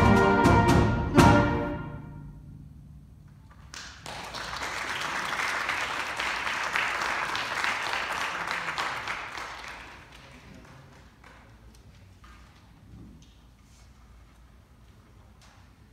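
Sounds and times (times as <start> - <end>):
audience applauding: 3.6 - 11.7.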